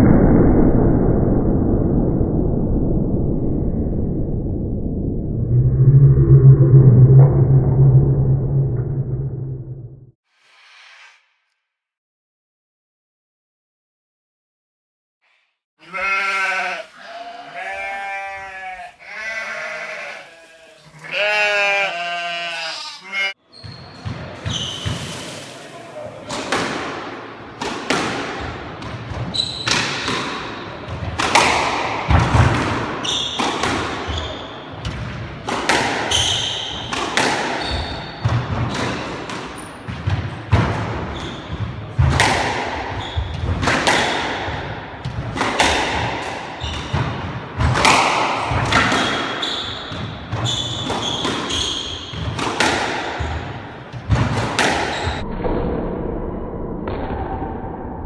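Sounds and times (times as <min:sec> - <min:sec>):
squash ball cracking off rackets and walls: 0:41.9 - 0:55.2.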